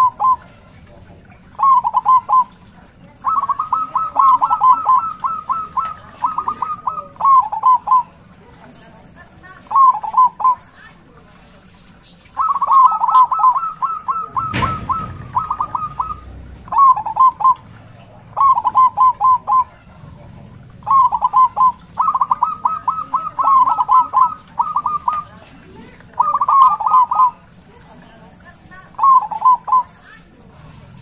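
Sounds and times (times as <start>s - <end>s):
dove cooing: 0.0s - 11.6s, 12.3s - 31.0s
sharp knock: 14.4s - 15.8s.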